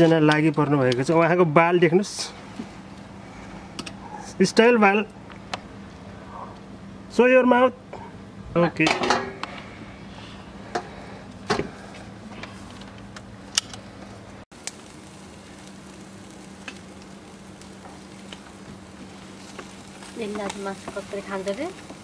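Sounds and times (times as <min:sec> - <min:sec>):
meat sizzling on a grill: 0:14.5 - 0:22.0.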